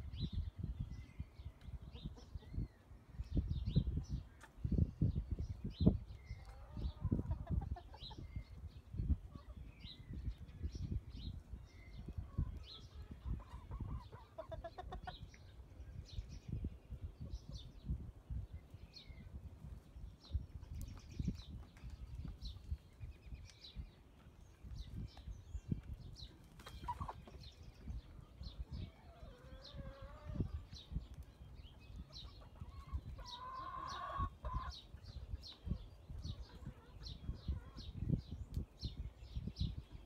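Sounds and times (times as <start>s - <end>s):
hens clucking: 6.4s - 8.3s, 12.1s - 15.5s, 26.4s - 30.8s, 31.8s - 38.1s.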